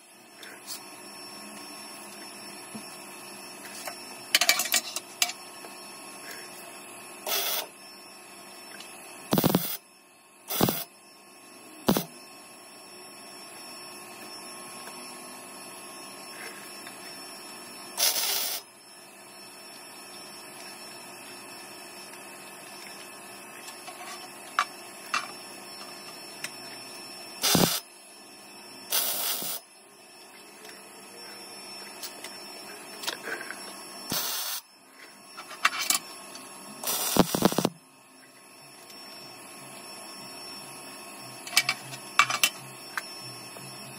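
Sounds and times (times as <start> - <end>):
steady electrical hum: 0.0 - 43.9
short welding bursts: 9.3 - 9.8, 10.5 - 10.8, 18.0 - 18.6, 27.4 - 27.8, 28.9 - 29.6, 34.1 - 34.6, 36.8 - 37.7.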